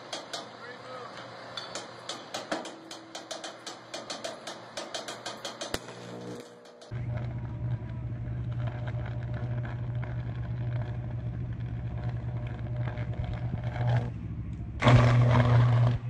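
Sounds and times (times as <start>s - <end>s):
power line arcing buzz: 5.5s - 16.0s.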